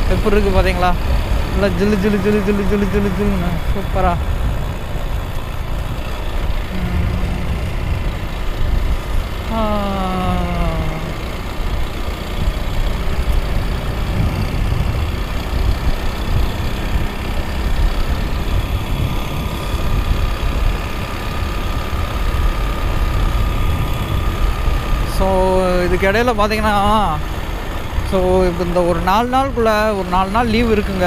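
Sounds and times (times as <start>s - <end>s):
faint steady whine: 0.0s - 15.1s
motorcycle engine running: 0.0s - 31.0s
road rumble: 0.0s - 31.0s
wind rush: 3.2s - 9.6s, 12.3s - 20.7s.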